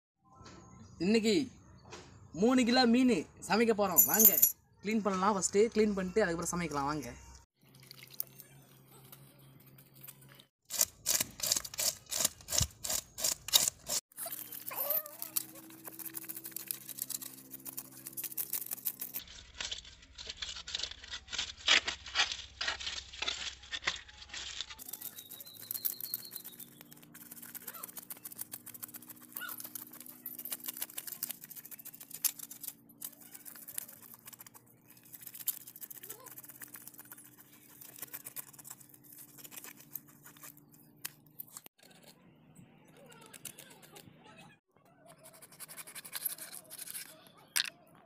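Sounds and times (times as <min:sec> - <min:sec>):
knife scraping fish scales: 0:09.9 - 0:40.8, 0:45.2 - 0:47.3.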